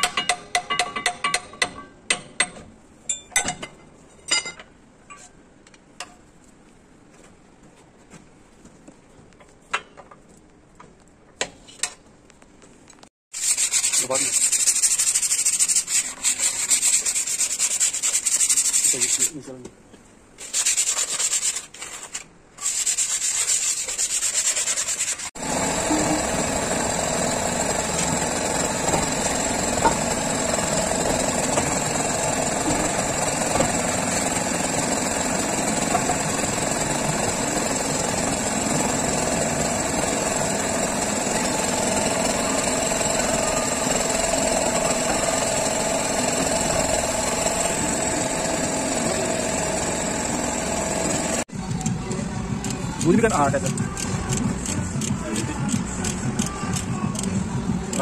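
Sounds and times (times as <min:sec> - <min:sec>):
gloved hand scrubbing wheel hub: 0:13.4 - 0:19.3, 0:20.4 - 0:25.3.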